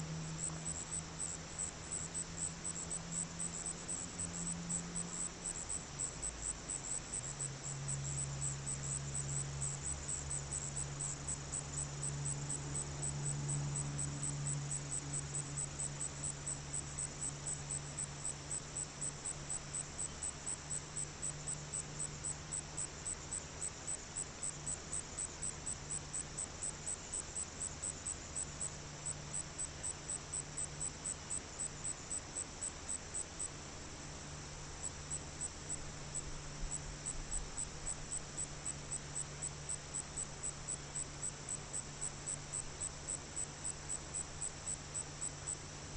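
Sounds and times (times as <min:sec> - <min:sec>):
insects chirping: 0:00.0 - 0:45.9
low steady hum: 0:00.0 - 0:45.9.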